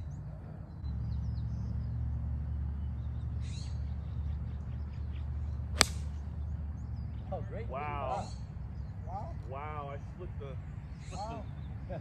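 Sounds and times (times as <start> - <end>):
birds chirping: 0.0 - 12.0
golf club striking ball: 5.8 - 6.3.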